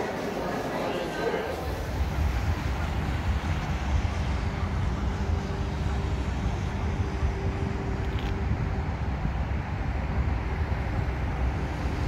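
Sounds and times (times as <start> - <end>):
distant engine noise: 0.0 - 12.0
wind rumble: 1.6 - 12.0.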